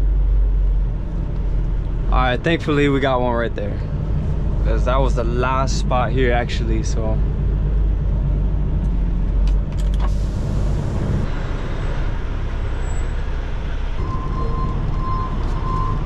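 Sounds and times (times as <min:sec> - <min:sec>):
truck engine rumbling: 0:00.0 - 0:16.0
backup alarm beeping: 0:14.0 - 0:16.0.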